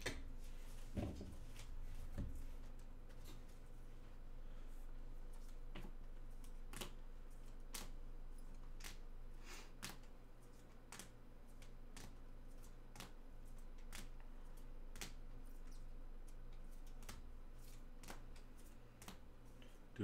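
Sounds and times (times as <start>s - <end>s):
faint steady hum: 0.0s - 20.0s
trading cards clicking: 13.8s - 14.2s.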